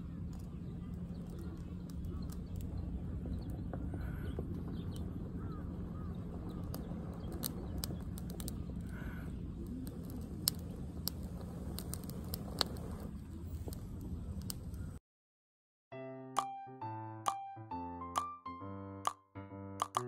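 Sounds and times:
bird chirp: 0.0 - 11.0
low outdoor rumble: 0.0 - 15.0
sharp clicks: 19.8 - 20.0.

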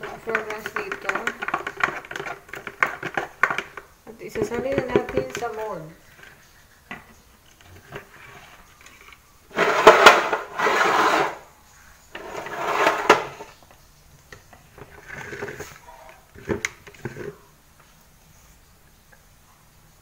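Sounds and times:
plastic containers scraped with spatula: 0.0 - 11.5, 12.1 - 13.6, 14.6 - 17.5.

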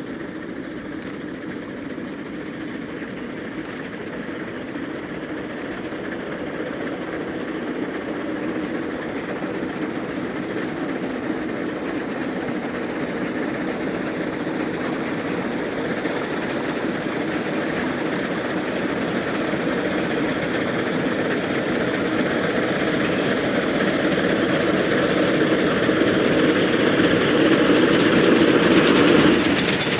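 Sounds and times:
steam locomotive running: 0.0 - 29.9.

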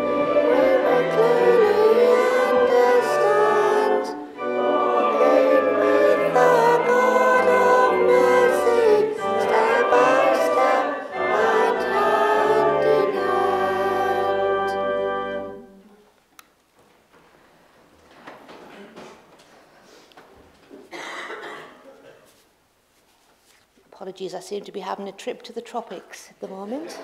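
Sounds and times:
voices singing a hymn: 0.0 - 15.8
instrumental accompaniment: 0.0 - 16.0.

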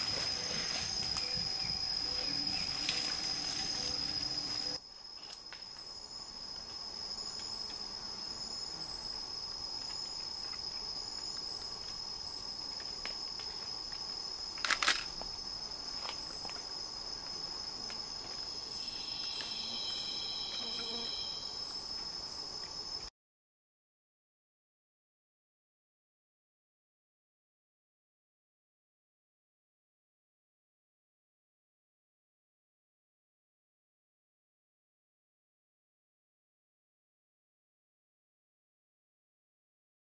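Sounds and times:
high-pitched insect trill: 0.0 - 23.1.

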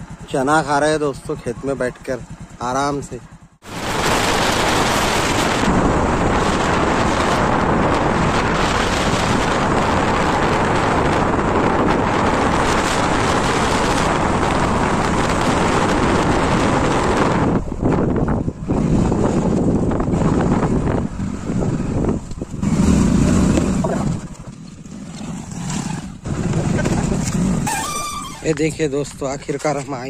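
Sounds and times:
motorbike engine: 0.0 - 29.0
road noise: 0.0 - 30.0
wind buffeting microphone: 3.6 - 30.0.

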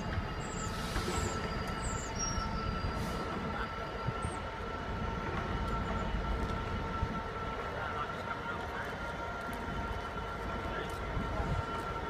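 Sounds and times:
diesel locomotive rumble: 0.0 - 12.0.

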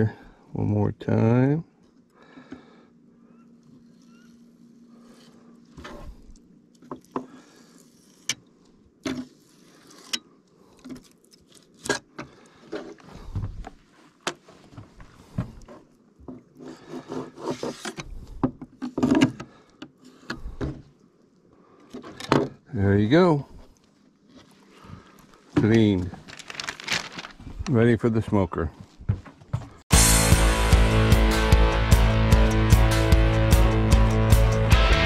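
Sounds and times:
knife scraping plastic table: 16.6 - 18.0.

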